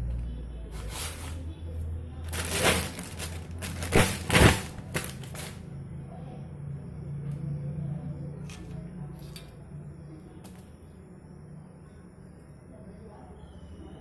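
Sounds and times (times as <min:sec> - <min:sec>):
low steady hum: 0:00.0 - 0:14.0
rustling crunching noise: 0:02.2 - 0:05.6.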